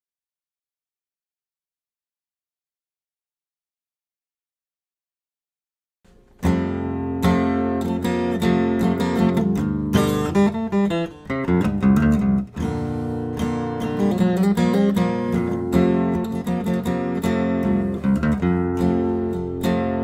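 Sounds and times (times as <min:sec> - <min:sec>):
acoustic guitar country tune: 0:06.1 - 0:20.0.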